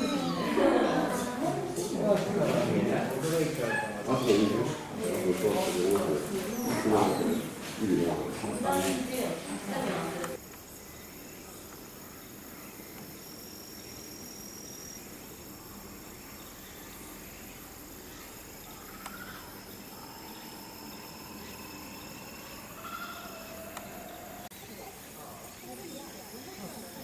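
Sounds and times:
crickets trilling: 0:00.0 - 0:27.0
insects chirring: 0:00.0 - 0:27.0.

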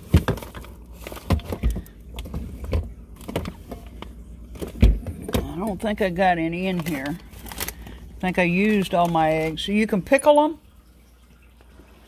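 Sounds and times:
items knocked in refrigerator: 0:00.0 - 0:03.9, 0:04.5 - 0:05.7
refrigerator low hum: 0:00.0 - 0:12.0.

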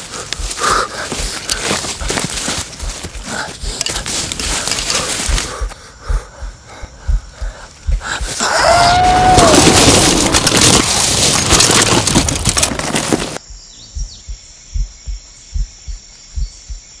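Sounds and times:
heartbeat-style double thumps: 0:00.0 - 0:01.4, 0:02.7 - 0:03.8, 0:05.2 - 0:10.8, 0:13.4 - 0:17.0
crackling crashing noise burst: 0:08.7 - 0:13.4.

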